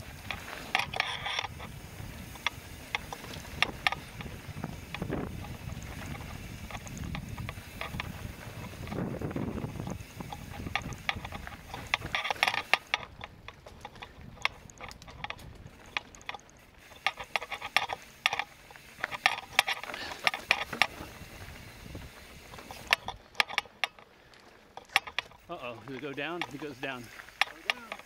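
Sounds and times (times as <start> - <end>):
wind on microphone: 0.0 - 12.4, 20.6 - 23.2
mountain bike rattling and clicking: 0.0 - 28.0.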